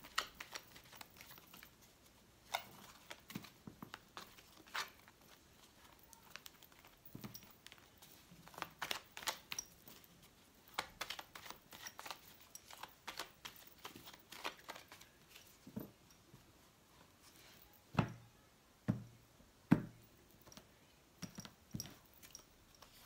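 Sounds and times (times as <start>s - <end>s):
cards being shuffled: 0.0s - 15.9s.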